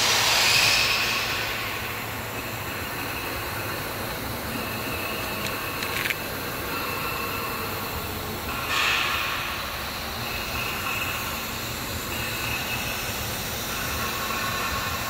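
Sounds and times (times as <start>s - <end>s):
high machine whine: 0.0s - 15.0s.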